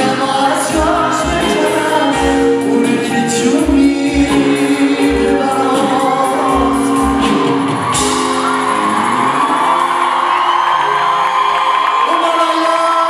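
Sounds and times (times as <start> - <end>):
man singing: 0.0 - 7.6, 12.1 - 13.0
pop band playing: 0.0 - 13.0.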